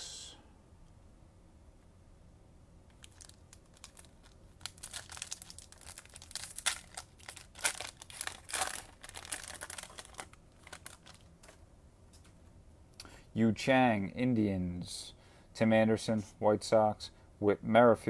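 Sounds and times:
foil wrapper tearing and crinkling: 0:02.9 - 0:11.6.

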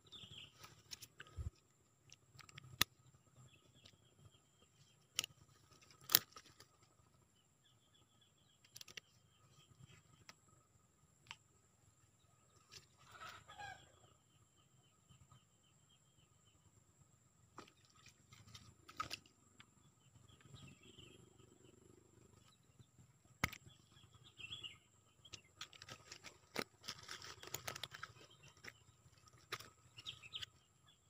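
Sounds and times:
birds calling: 0:12.2 - 0:14.2, 0:17.6 - 0:31.0.

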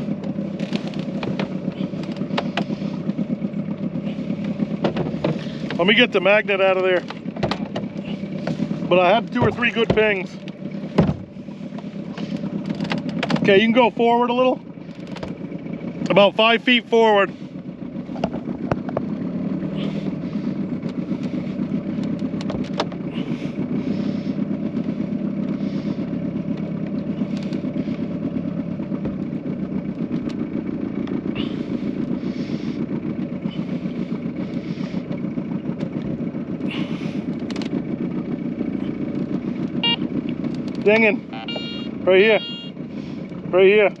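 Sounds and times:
outboard motor running: 0:00.0 - 0:44.0.

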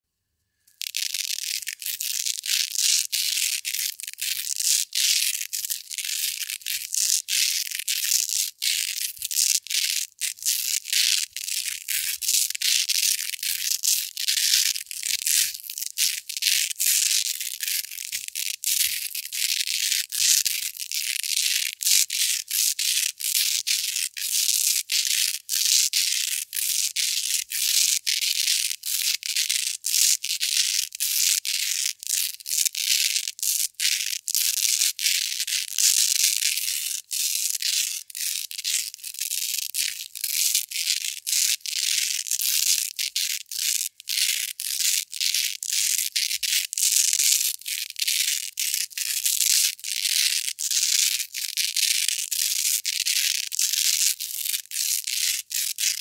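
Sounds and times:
velcro tape rubbing: 0:00.7 - 0:18.2.

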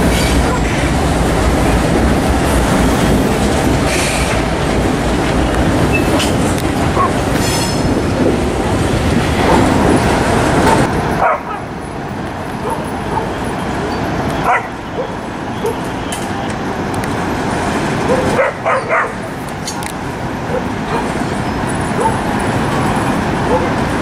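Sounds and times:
freight train wheels rumbling: 0:00.0 - 0:24.0
dog barking: 0:00.4 - 0:00.7, 0:07.0 - 0:07.2, 0:09.4 - 0:09.7, 0:10.6 - 0:11.6, 0:12.6 - 0:13.4, 0:14.4 - 0:15.9, 0:18.1 - 0:19.2, 0:20.5 - 0:21.1, 0:22.0 - 0:22.2, 0:23.5 - 0:23.8.

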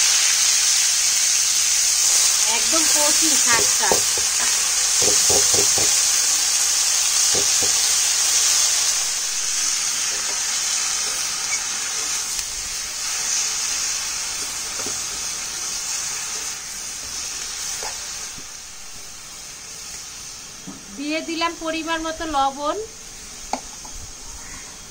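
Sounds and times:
greens sizzling in hot oil: 0:00.0 - 0:24.9
stirring knocks: 0:03.3 - 0:06.1, 0:07.3 - 0:07.9.

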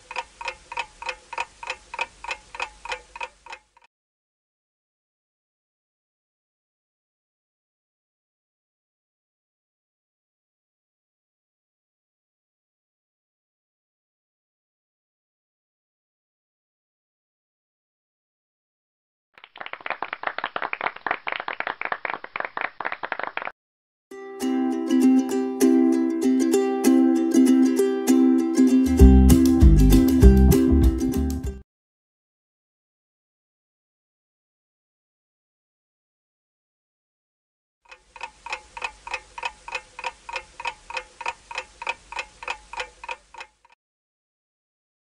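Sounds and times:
clock ticking: 0:00.0 - 0:03.9, 0:37.9 - 0:43.8
group clapping: 0:19.4 - 0:23.6
ukulele music: 0:24.1 - 0:31.6.

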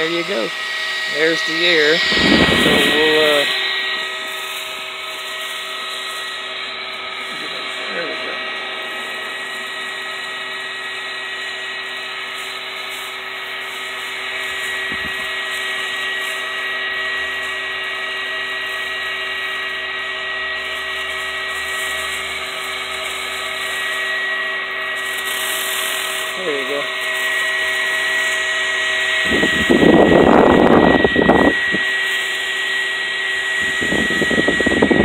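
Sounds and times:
small fan motor whining: 0:00.0 - 0:35.0
air blowing: 0:00.1 - 0:15.4, 0:29.2 - 0:31.9.

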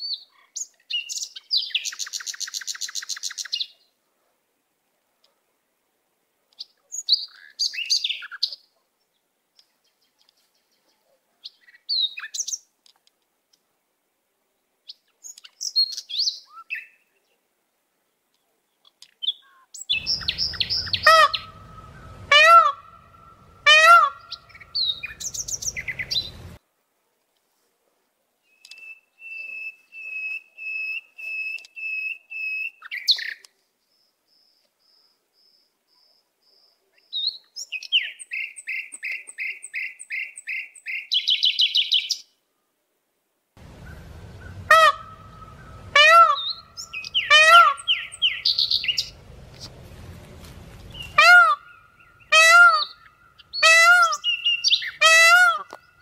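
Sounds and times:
bird trill: 0:19.8 - 0:26.6, 0:43.6 - 0:49.8, 0:50.8 - 0:56.0
birds calling: 0:19.8 - 0:26.6, 0:43.6 - 0:56.0.

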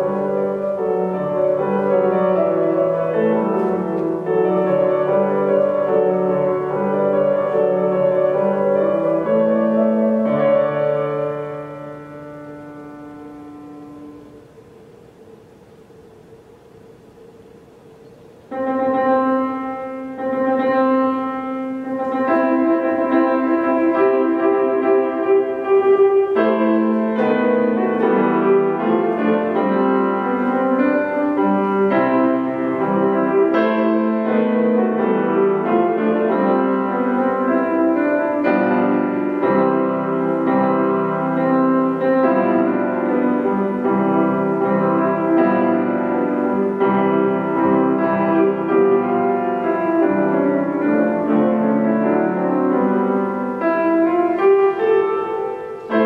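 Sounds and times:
solo grand piano: 0:00.0 - 0:56.0.

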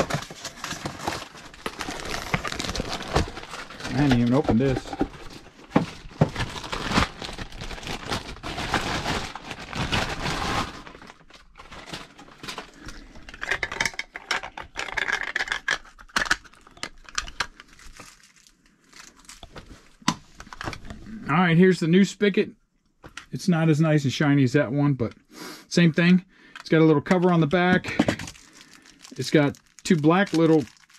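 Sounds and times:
packaging crinkling: 0:00.0 - 0:20.8, 0:27.4 - 0:30.9.

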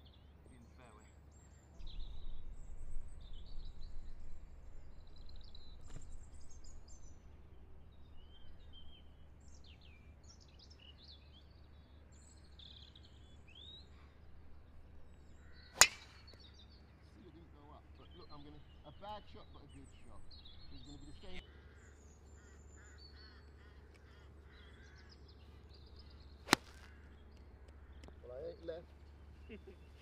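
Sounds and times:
small birds chirping: 0:00.0 - 0:30.0
golf club striking ball: 0:15.6 - 0:16.4, 0:26.4 - 0:27.0.

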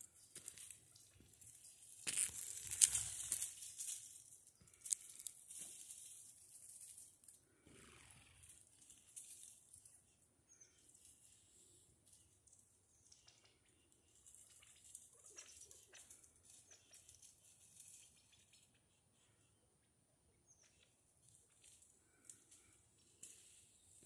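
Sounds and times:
dry rustling and crunching: 0:00.0 - 0:07.4.

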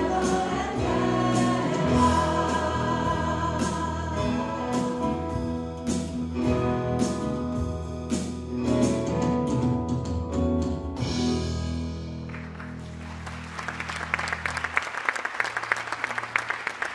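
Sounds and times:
audience applause: 0:12.3 - 0:16.9.

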